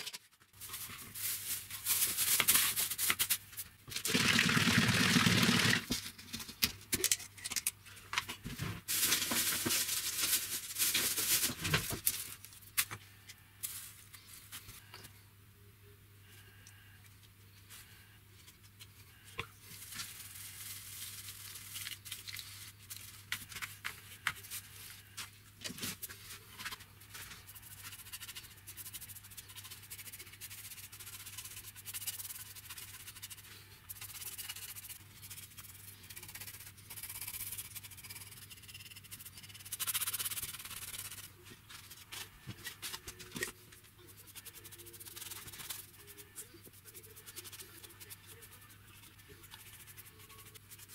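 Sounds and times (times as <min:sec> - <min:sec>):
paintbrush scratchy strokes: 0:25.9 - 0:42.4, 0:43.8 - 0:50.9.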